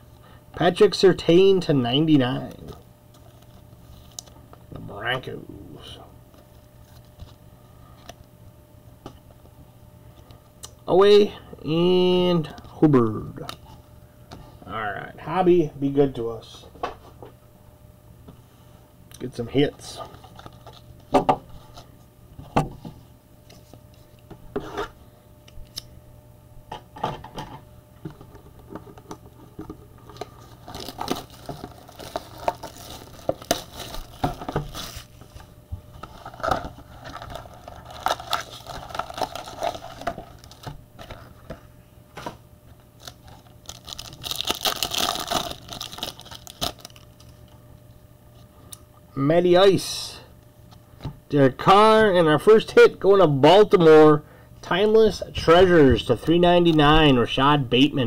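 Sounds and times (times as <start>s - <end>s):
foil wrapper crinkling: 29.6s - 41.4s, 43.0s - 47.5s.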